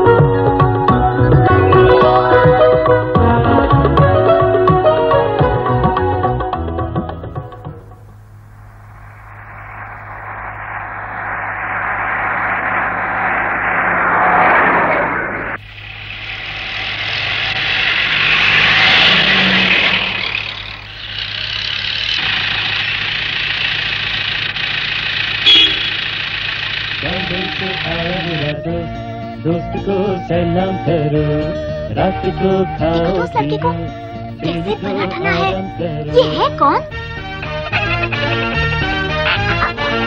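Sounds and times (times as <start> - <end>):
bus engine running: 0.0 - 40.0
low hum: 7.6 - 36.2.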